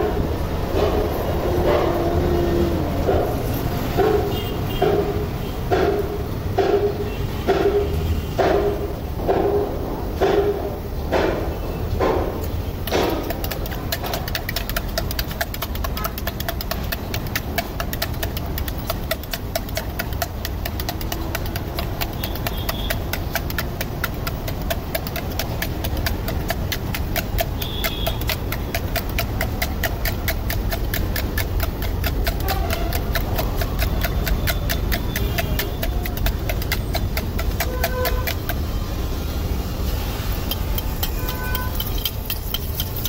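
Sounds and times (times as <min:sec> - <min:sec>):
whisk clicking against steel bowl: 0:12.8 - 0:38.7, 0:40.3 - 0:43.0.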